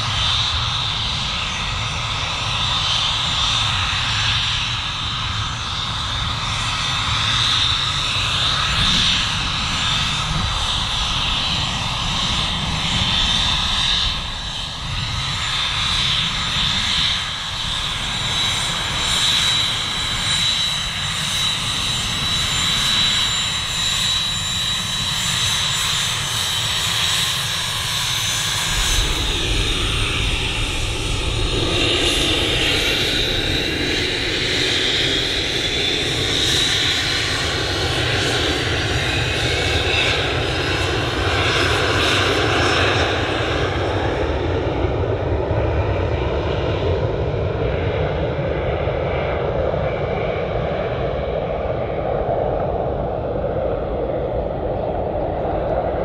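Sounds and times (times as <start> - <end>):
jet engines whining at taxi power: 0.0 - 56.0.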